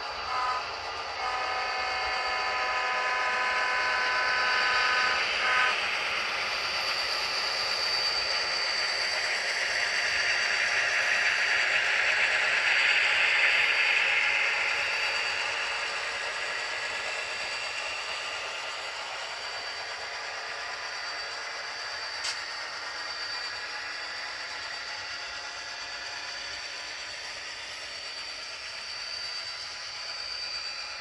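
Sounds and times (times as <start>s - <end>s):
model locomotive engine: 0.0s - 31.0s
multi-note locomotive horn: 0.2s - 5.8s.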